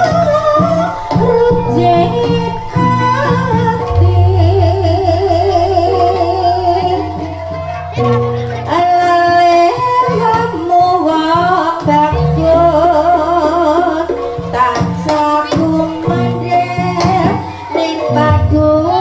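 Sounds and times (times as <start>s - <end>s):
drum strokes: 0.0s - 7.8s
wavering vibrato melody: 0.0s - 8.7s
low gong tones: 0.4s - 8.4s.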